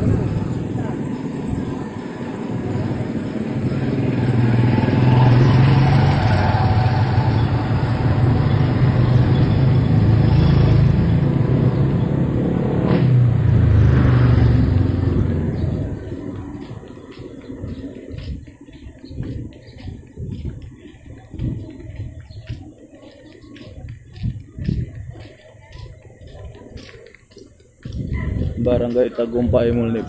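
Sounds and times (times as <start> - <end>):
small motorcycle engines droning: 0.0 - 23.6.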